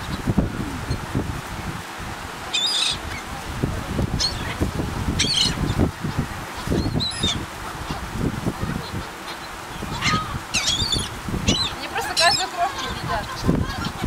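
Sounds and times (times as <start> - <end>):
gulls squawking: 2.5 - 3.4, 4.1 - 14.0.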